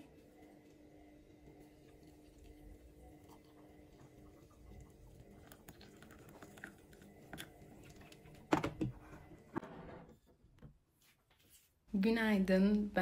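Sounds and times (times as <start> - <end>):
water trickling into a mug: 1.4 - 8.4.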